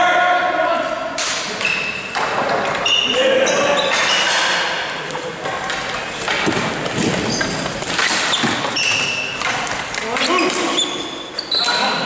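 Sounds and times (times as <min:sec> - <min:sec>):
sneakers squeaking on floor: 0:01.5 - 0:04.6, 0:05.9 - 0:12.0.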